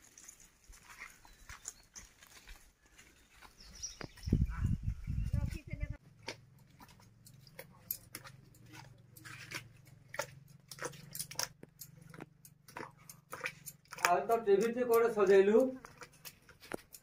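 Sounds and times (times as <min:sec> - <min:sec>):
wet squelches of mashing pulp: 0:06.0 - 0:17.0.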